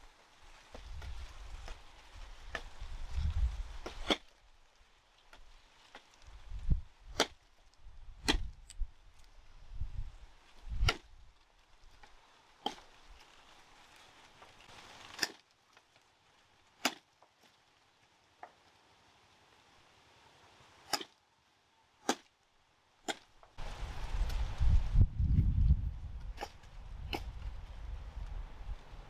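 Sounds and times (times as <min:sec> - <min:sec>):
machete chopping sugarcane: 0:03.8 - 0:04.3, 0:07.1 - 0:07.4, 0:08.2 - 0:08.5, 0:10.8 - 0:11.1, 0:12.6 - 0:12.9, 0:15.1 - 0:15.4, 0:16.8 - 0:17.1, 0:20.8 - 0:21.1, 0:22.0 - 0:22.3, 0:23.0 - 0:23.3.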